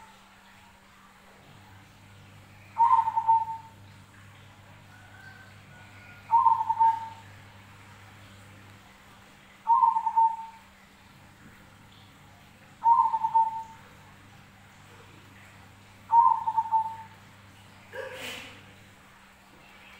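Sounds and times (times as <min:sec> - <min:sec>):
dove cooing: 0:02.6 - 0:03.9, 0:04.8 - 0:07.3, 0:09.6 - 0:10.7, 0:12.7 - 0:14.0, 0:16.1 - 0:17.3.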